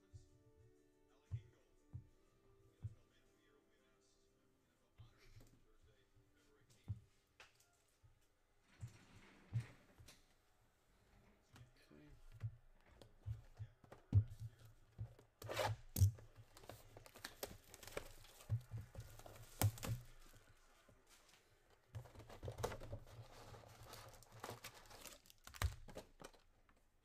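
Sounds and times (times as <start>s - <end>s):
plastic shrink wrap crackling: 15.9s - 20.4s, 22.2s - 26.5s.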